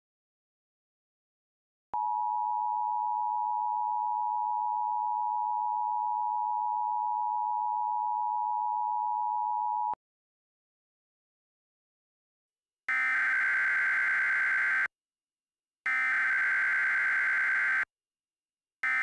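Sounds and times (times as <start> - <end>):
harsh two-tone alarm signal: 12.9 - 14.9, 15.9 - 17.9.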